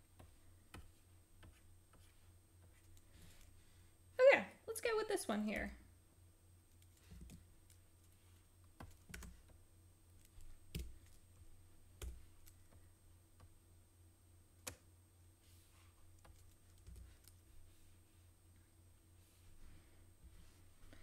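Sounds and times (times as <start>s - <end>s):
low steady hum: 0.0s - 21.0s
computer keys clicking: 8.7s - 9.6s, 10.2s - 11.3s, 16.1s - 17.4s.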